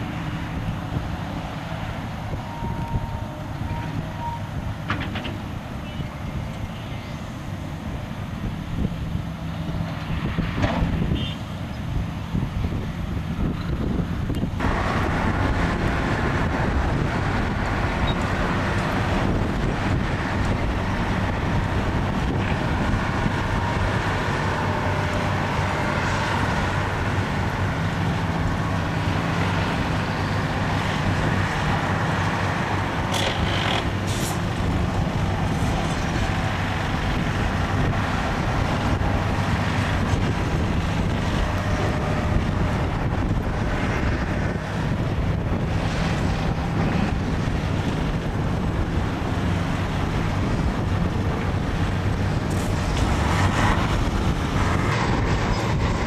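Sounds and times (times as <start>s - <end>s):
diesel truck engine running: 11.9s - 56.0s.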